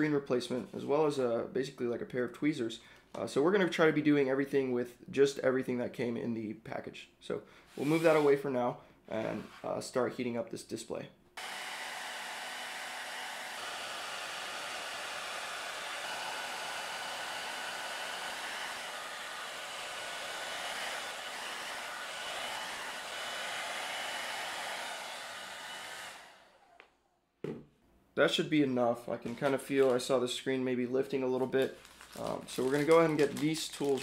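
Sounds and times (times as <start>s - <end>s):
blow dryer running: 11.4s - 26.9s.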